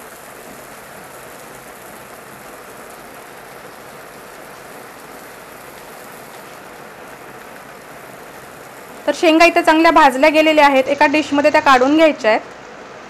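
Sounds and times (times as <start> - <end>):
beans sizzling in hot oil: 0.0 - 13.0.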